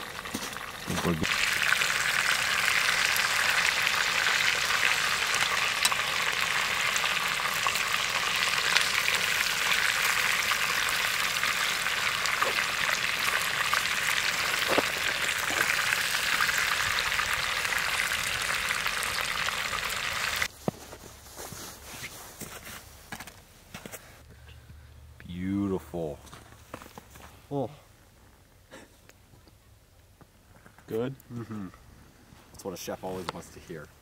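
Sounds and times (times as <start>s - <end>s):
fish sizzling in a pan: 0.0s - 20.5s.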